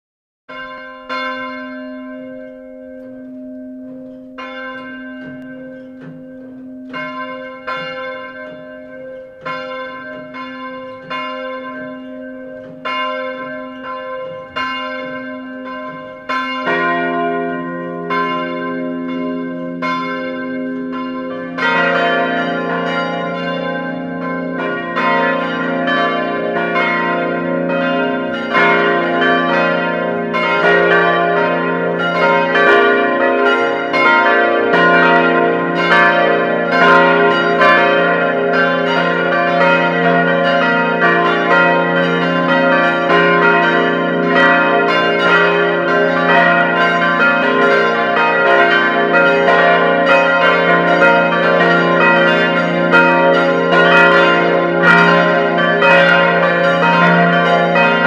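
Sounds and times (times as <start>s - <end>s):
church bells ringing: 0.5s - 58.0s.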